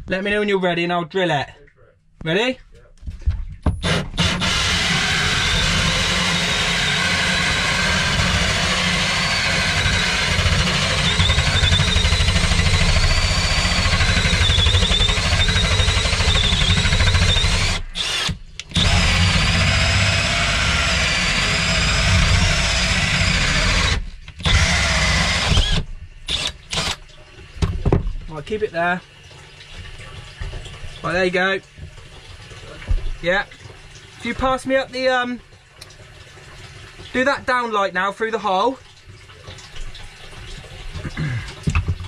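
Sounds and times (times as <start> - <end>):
drill cutting with hole saw: 3.8 - 27.0.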